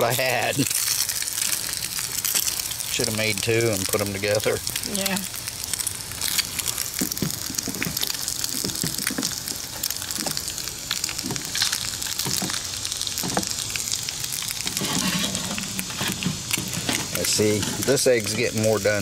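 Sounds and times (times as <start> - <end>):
eggs sizzling in hot oil: 0.0 - 19.0
spatula scraping metal: 14.7 - 18.1.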